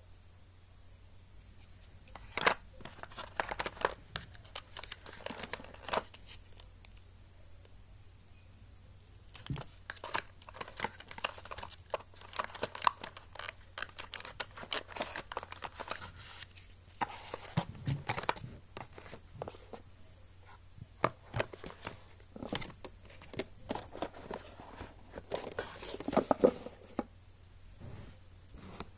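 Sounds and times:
cardboard and paper rustling: 2.0 - 6.6, 9.3 - 19.8, 20.4 - 27.1.

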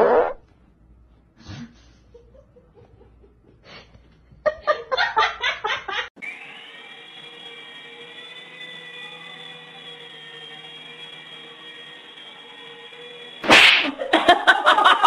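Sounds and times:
toy helicopter motor whine: 6.2 - 14.1
person laughing: 13.9 - 15.0.

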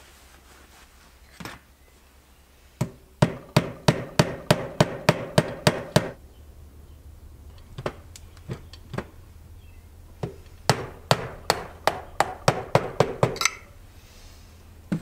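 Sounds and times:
mallet knocking on steel post: 2.8 - 6.2.

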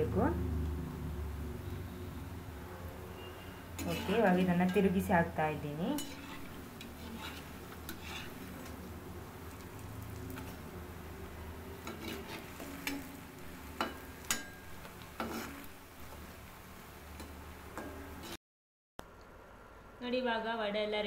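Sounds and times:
food sizzling in hot oil: 0.1 - 18.4
metal spoon scraping pan: 3.1 - 8.9, 11.8 - 15.8.

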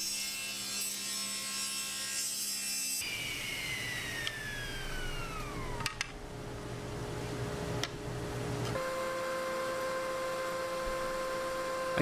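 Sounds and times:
table saw cutting wood: 0.0 - 6.1, 8.8 - 12.0
saw blade winding down whine: 3.0 - 6.1, 8.8 - 12.0.

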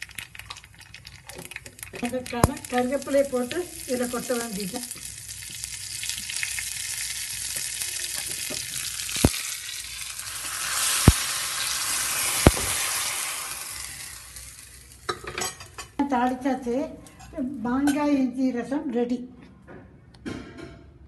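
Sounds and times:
sizzling hiss into liquid: 0.0 - 15.9
spices sizzling in ghee: 0.0 - 16.4.

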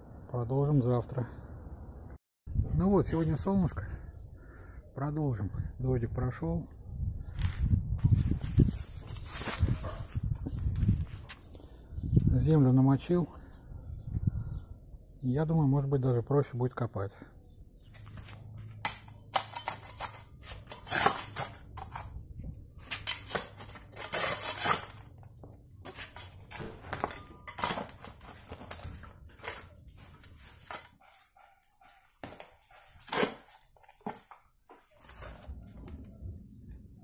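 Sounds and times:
shovel scraping earth and stones: 7.4 - 11.4, 18.0 - 31.0, 32.2 - 35.6.

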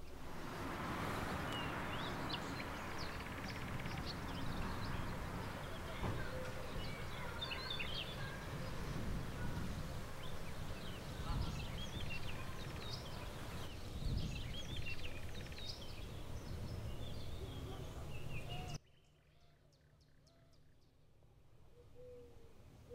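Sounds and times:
birds chirping: 0.0 - 21.1.

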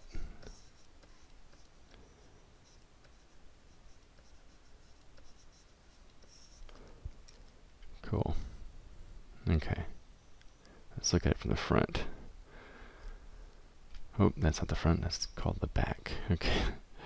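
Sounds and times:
stylus scratching on tablet: 0.0 - 7.0
stylus ticks and click: 0.4 - 7.9.

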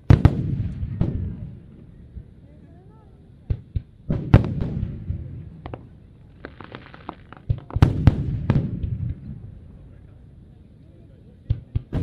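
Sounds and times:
fireworks shells bursting: 5.6 - 8.9
crackling pops: 5.6 - 9.2.

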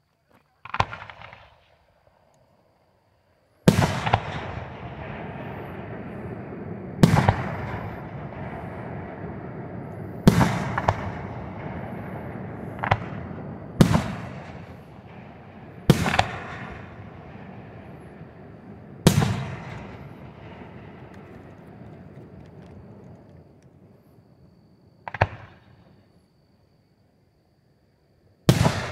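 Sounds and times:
small firework cracks: 0.5 - 1.9, 10.3 - 12.1, 12.7 - 17.0, 18.6 - 23.9, 25.0 - 25.8
firework booms: 3.6 - 24.3, 25.0 - 26.0, 28.4 - 28.9
rolling rumble: 3.9 - 26.0.

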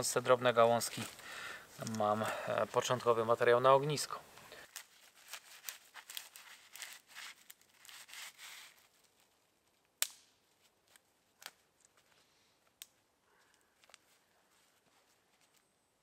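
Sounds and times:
twigs crackling and rustling: 0.0 - 15.7
twigs snapping: 1.8 - 2.0, 4.6 - 8.4, 9.9 - 14.2.

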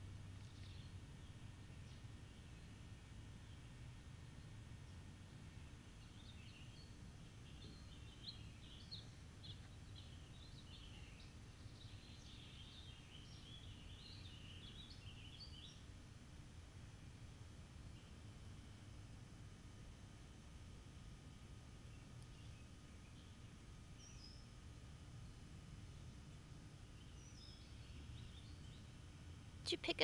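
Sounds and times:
songbird chirping and warbling: 0.4 - 2.8, 6.0 - 15.9, 21.9 - 24.5, 27.0 - 29.0.

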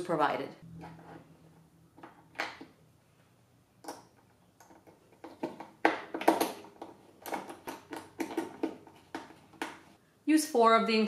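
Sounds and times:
screwdriver clicking and scraping: 3.8 - 9.8.

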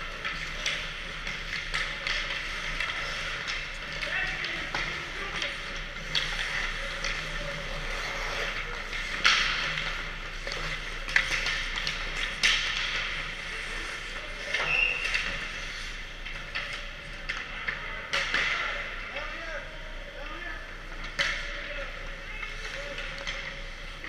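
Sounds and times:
skate blades scraping ice: 0.0 - 18.0
hockey sticks and pucks clacking: 0.0 - 24.0
low hum of rink: 0.0 - 24.0.

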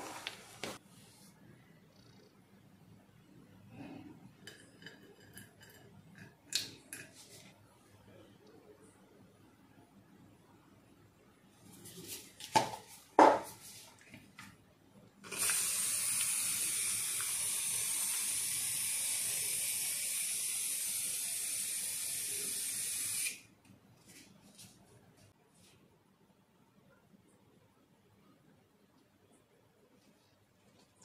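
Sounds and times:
aerosol can spraying: 15.3 - 23.4.

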